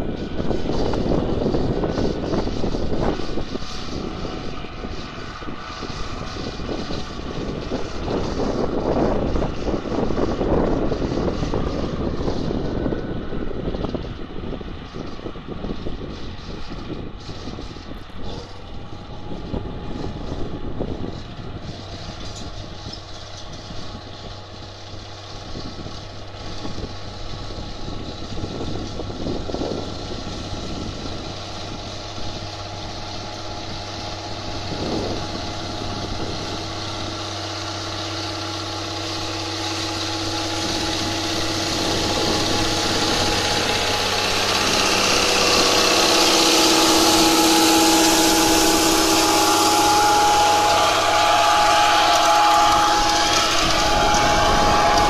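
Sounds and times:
tines hissing through dry soil: 0.0s - 55.0s
tractor diesel engine running: 0.0s - 55.0s.

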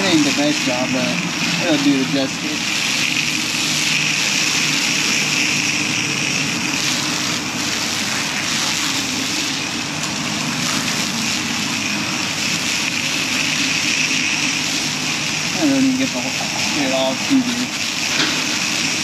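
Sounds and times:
pressure washer jet spraying: 0.0s - 19.0s
pump droning: 0.0s - 19.0s.

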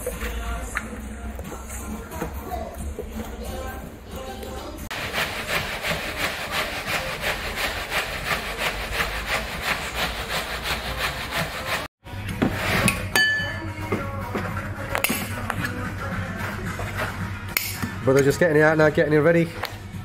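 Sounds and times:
metal drum grinding ice: 4.9s - 13.2s.

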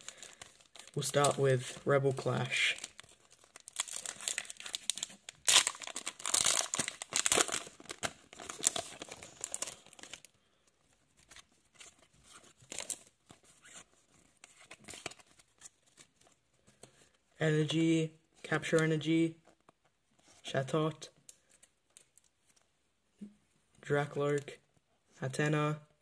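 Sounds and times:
foil wrapper tearing and crinkling: 2.6s - 10.3s.

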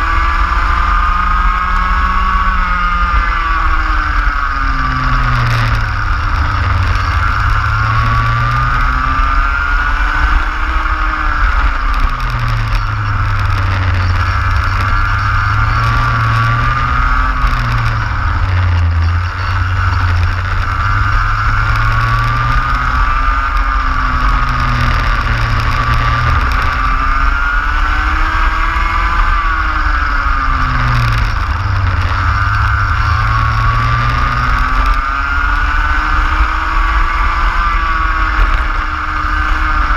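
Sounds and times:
kart engine revving: 0.0s - 39.9s.

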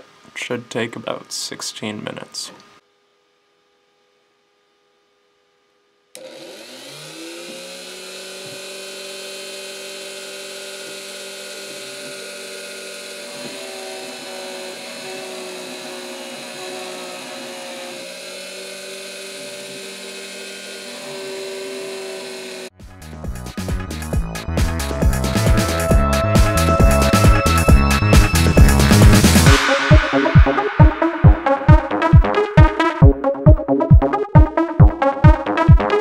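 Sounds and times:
router spindle whining: 6.2s - 22.7s.

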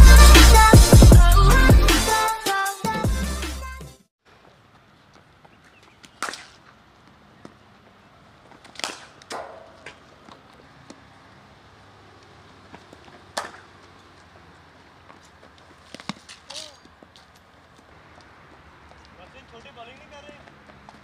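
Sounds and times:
cricket ball cracking off bat: 6.0s - 6.7s, 8.7s - 10.0s, 13.4s - 13.7s.

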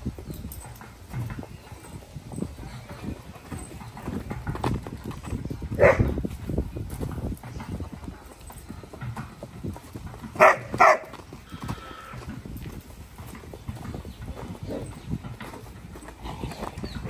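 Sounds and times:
horse hooves thudding on dirt: 0.0s - 17.0s
dog barking loudly: 5.8s - 6.1s, 10.4s - 11.1s.

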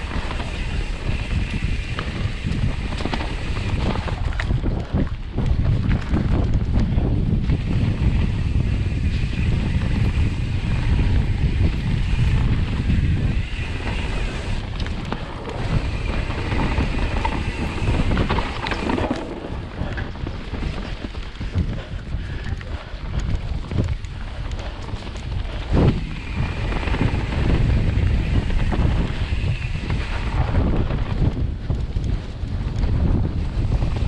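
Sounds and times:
bike rattling over bumps: 0.0s - 34.0s
wind buffeting microphone: 0.0s - 34.0s
tyres rolling over dirt and leaves: 12.0s - 21.4s.

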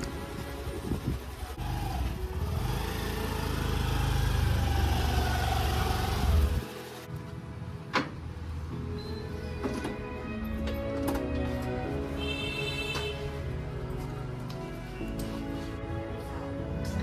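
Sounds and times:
scooter engine running: 0.9s - 7.0s.

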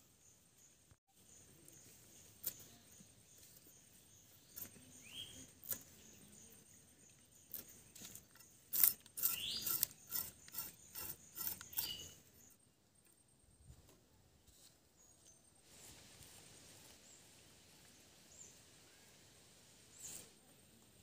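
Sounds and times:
fish scraped against blade: 7.6s - 12.2s.

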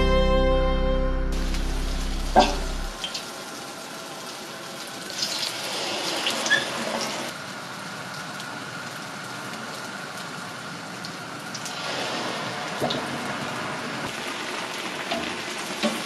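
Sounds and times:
background music: 0.0s - 3.0s
dough sizzling in hot oil: 1.4s - 16.0s
oil crackling and spattering: 11.0s - 16.0s.

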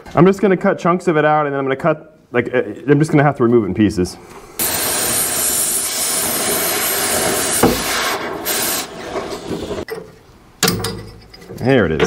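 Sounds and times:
cutting torch hissing: 4.1s - 9.9s
sharp knock: 7.6s - 7.9s.

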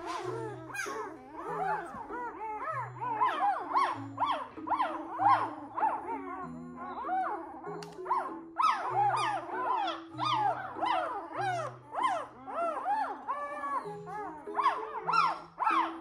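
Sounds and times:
puppy squealing: 0.0s - 16.0s
soft background music: 0.0s - 16.0s.

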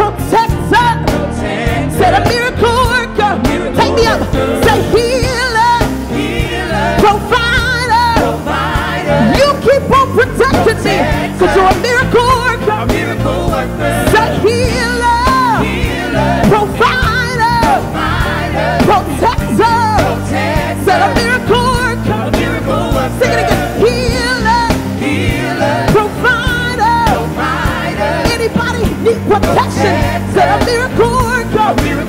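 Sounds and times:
backing singers: 0.0s - 32.0s
band with drums and keyboard: 0.0s - 32.0s
woman singing lead vocal: 0.0s - 32.0s.

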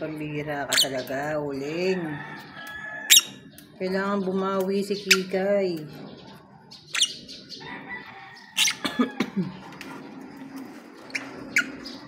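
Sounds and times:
lovebirds chirping: 0.0s - 12.0s.

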